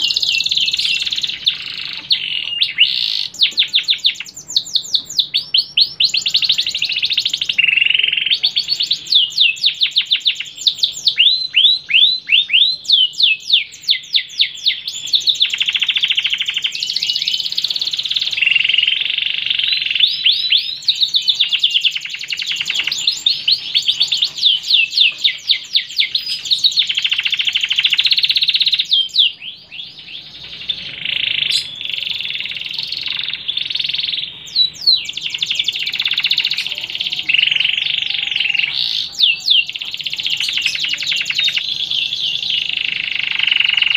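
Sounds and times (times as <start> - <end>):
canary singing: 0.0 - 43.9.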